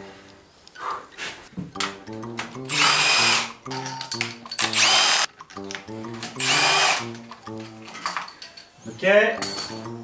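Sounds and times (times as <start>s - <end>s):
background music with beat: 1.5s - 8.3s, 9.4s - 10.0s
cordless power tool whining: 2.7s - 3.5s, 4.6s - 5.3s, 6.4s - 7.2s.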